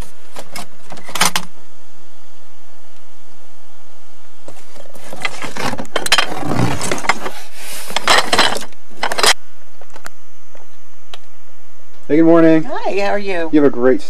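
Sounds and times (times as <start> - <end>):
rummaging through objects in box: 4.5 - 9.4.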